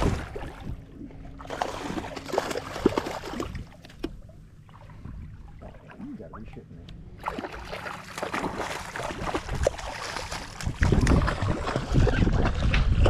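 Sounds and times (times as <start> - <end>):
wind rumbling on microphone: 0.0 - 1.4, 8.4 - 13.0
water splashing beside boat: 0.0 - 13.0.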